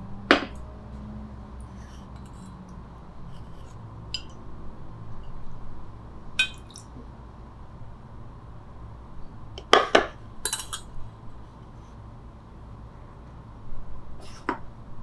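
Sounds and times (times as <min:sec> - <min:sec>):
mug and dripper clinking: 0:06.4 - 0:06.8.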